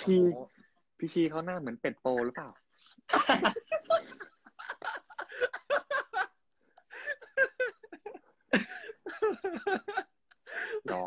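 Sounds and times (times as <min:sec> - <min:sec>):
men talking: 0:00.0 - 0:04.2, 0:10.8 - 0:11.0
men laughing: 0:02.2 - 0:11.0.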